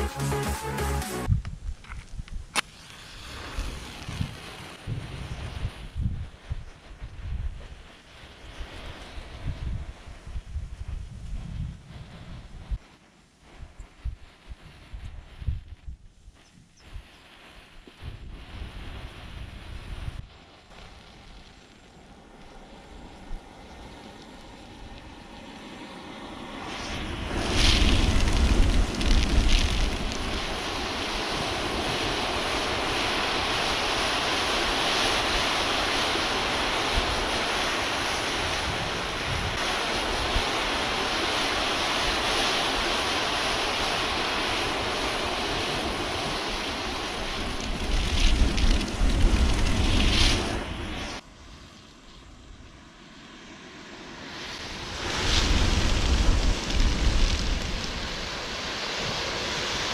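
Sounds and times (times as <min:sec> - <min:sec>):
matches flaring with rushing roar: 0:17.9 - 0:59.9.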